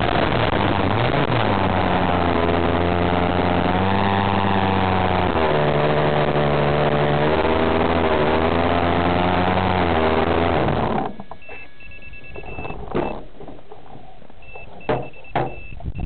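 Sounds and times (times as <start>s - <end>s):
short high electronic beeps: 11.4s - 13.2s, 14.4s - 16.0s
sharp knocks: 14.8s - 15.8s.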